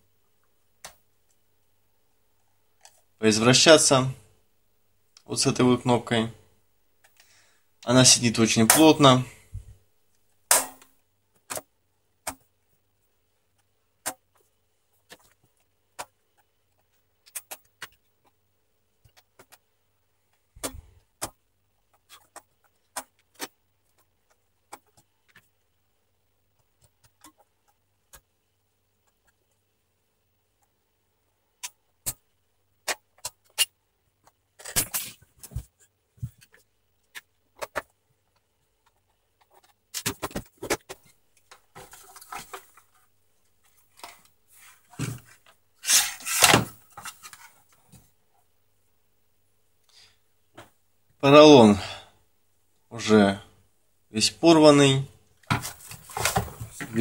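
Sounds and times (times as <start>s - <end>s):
plastic scraping and rattling: 38.8s - 43.0s, 55.4s - 57.0s.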